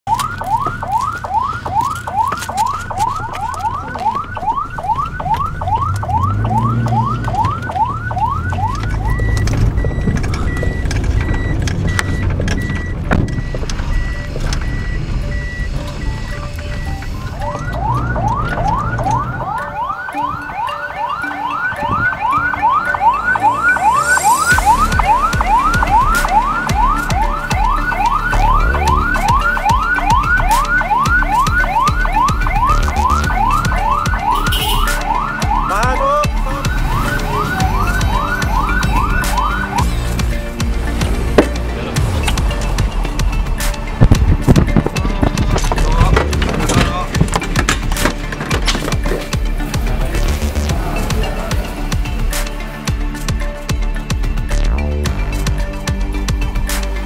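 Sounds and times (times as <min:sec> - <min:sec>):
ambulance siren yelping: 0:00.0 - 0:53.5
high electronic beeps: 0:00.1 - 0:40.4.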